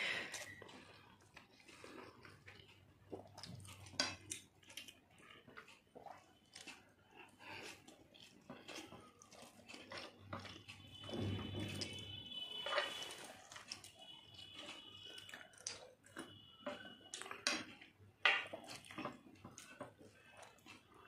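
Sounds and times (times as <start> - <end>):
chewing: 0.0 - 21.0.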